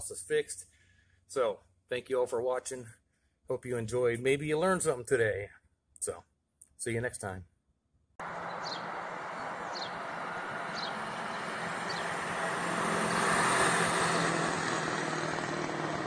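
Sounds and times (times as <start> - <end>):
bus engine humming: 8.2 - 16.0.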